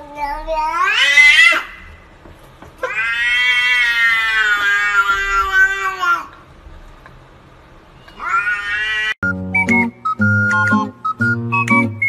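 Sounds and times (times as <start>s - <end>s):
cat meowing: 0.0s - 1.9s, 2.8s - 6.3s, 8.1s - 9.2s.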